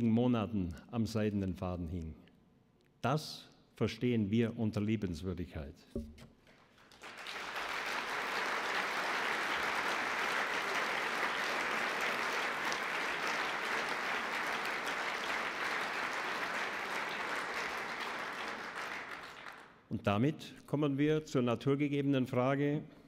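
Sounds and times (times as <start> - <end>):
large audience applauding: 6.5 - 19.8.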